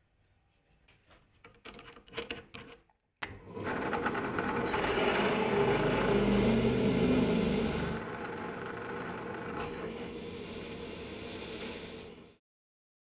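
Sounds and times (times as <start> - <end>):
drill bit cutting steel: 3.8 - 12.4.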